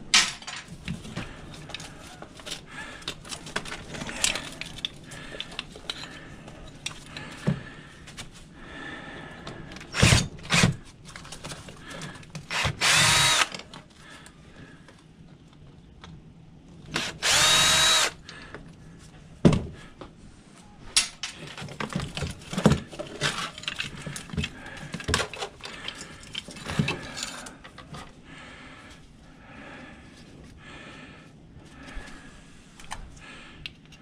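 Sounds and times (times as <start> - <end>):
metal parts clicking and knocking: 1.5 - 7.2, 21.0 - 28.0
cordless drill running: 10.0 - 10.8, 12.5 - 13.6, 17.0 - 18.2.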